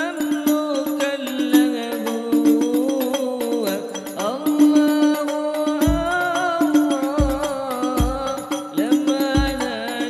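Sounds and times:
man singing into microphone: 0.0s - 10.0s
frame drum strokes: 5.8s - 10.0s.

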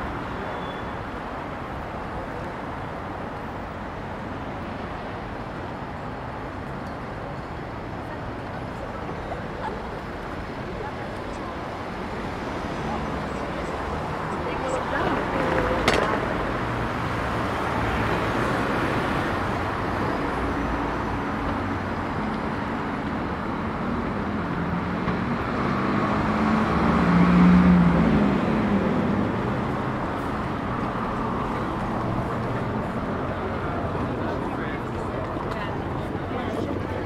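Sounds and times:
cars and bus passing: 0.0s - 37.0s
vehicle engine hum passing close: 10.8s - 37.0s.

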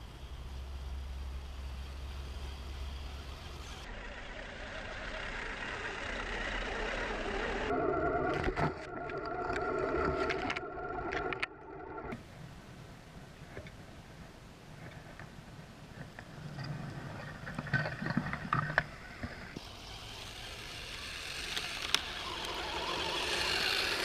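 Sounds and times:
electric motors whining: 0.1s - 12.2s, 18.8s - 24.0s
scattered clicks: 8.2s - 12.2s, 20.9s - 24.0s.

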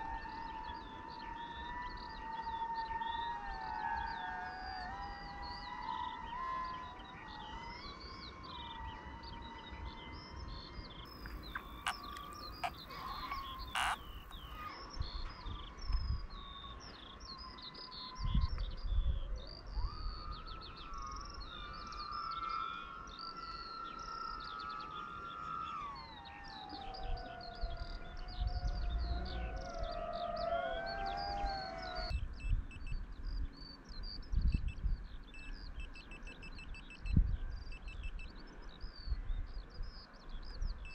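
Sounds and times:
small birds chirping: 6.0s - 40.9s
drone motors whining: 11.2s - 14.5s.

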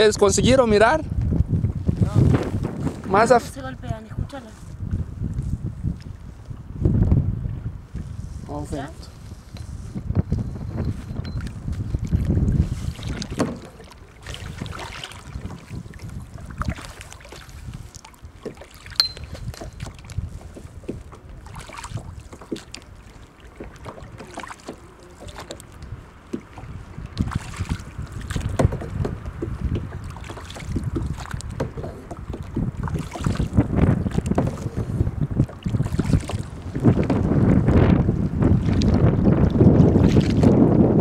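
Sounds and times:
wind buffeting microphone: 0.0s - 41.0s
paddle splashing in water: 7.9s - 41.0s
knocks against kayak hull: 13.0s - 14.8s, 26.3s - 37.9s.

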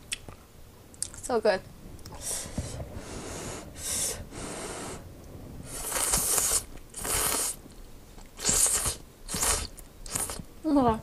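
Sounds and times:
noodles being slurped: 5.7s - 7.6s, 8.4s - 10.4s.

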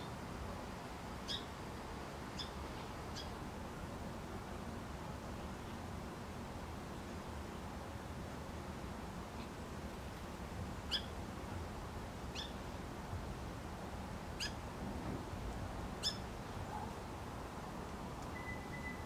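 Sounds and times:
steady background hiss: 0.0s - 19.0s
songbird chip calls: 1.3s - 1.5s, 10.9s - 11.1s, 12.3s - 12.6s, 16.0s - 16.3s, 18.3s - 19.0s.

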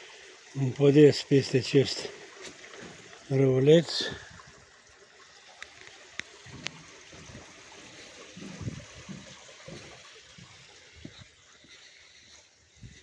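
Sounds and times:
brook trickling: 0.0s - 13.0s
footsteps on a path: 5.6s - 13.0s.

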